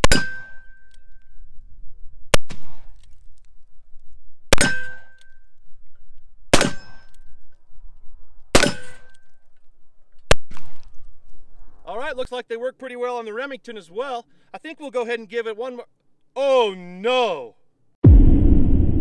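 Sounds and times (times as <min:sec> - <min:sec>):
steel target clang: 0:00.0 - 0:00.9, 0:06.6 - 0:07.1.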